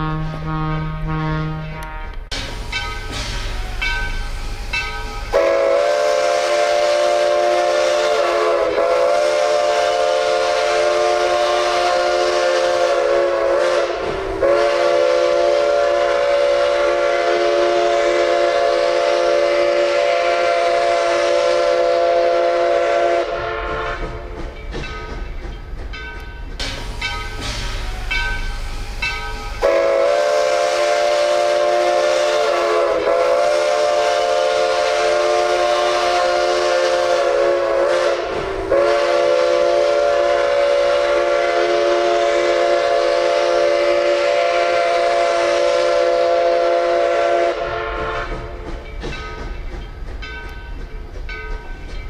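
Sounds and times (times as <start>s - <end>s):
locomotive horn blasts: 0.0s - 2.3s, 5.3s - 24.3s, 29.6s - 48.6s
faint train clatter: 1.8s - 52.0s.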